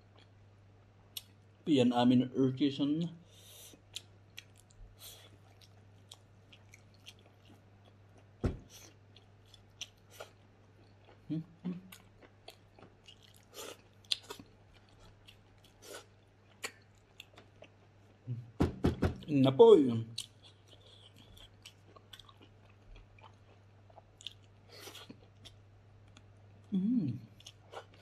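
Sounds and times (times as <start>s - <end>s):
faint steady hum: 0.0s - 28.0s
person chewing and biting: 3.8s - 18.0s, 20.2s - 26.3s
thump: 8.4s - 8.7s.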